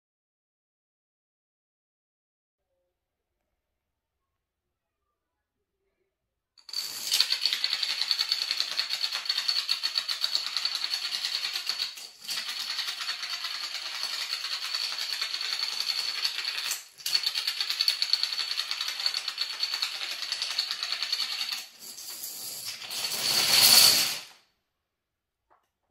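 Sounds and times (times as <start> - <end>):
dominoes toppling clatter: 6.7 - 24.4.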